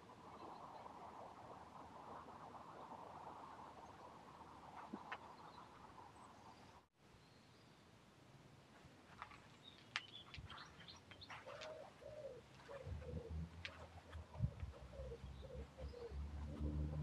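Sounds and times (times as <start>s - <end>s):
small birds chirping: 4.8s - 7.9s, 9.1s - 17.0s
pigeon cooing: 11.3s - 17.0s.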